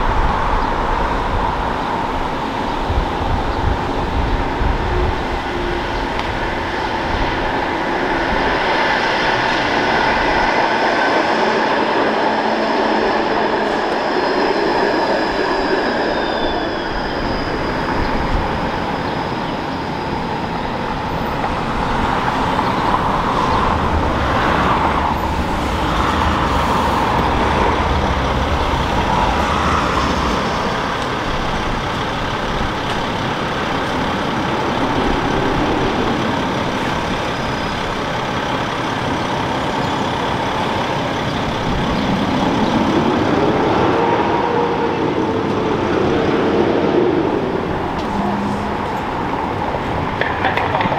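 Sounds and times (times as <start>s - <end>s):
road traffic: 0.0s - 50.9s
streetcar motors whining: 0.0s - 50.9s
streetcar wheels rumbling: 0.0s - 50.9s.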